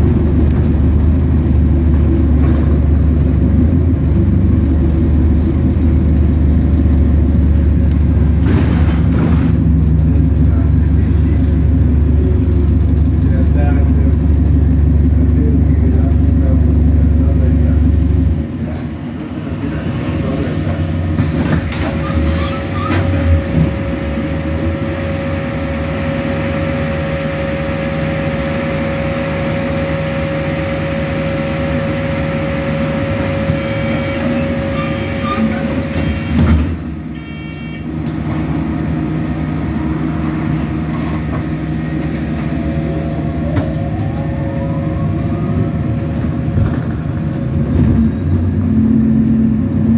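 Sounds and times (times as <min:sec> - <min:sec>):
bus engine drone: 0:00.0 - 0:49.9
whine: 0:39.4 - 0:48.7.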